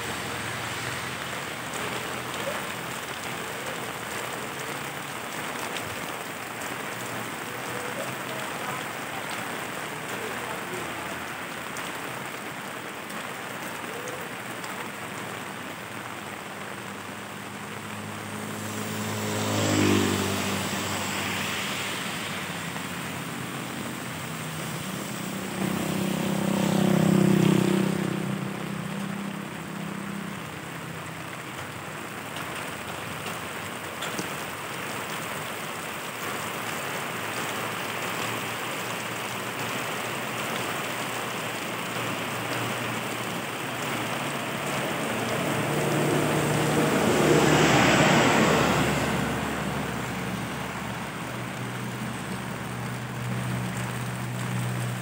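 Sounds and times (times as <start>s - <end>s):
steady rain falling: 0.0s - 55.0s
vehicle passing on wet road: 0.0s - 55.0s
motorcycle passing: 17.0s - 29.4s, 41.7s - 54.1s.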